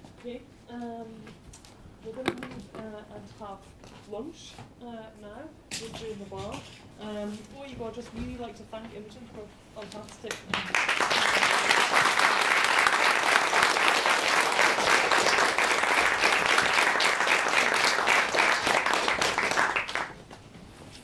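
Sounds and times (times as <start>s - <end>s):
audience applauding: 10.5s - 20.2s.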